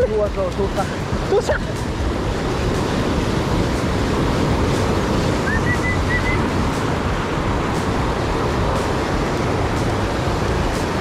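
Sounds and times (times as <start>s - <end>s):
surf breaking over rocks: 0.0s - 11.0s
wind buffeting microphone: 0.0s - 11.0s
short high whistle: 5.4s - 6.4s.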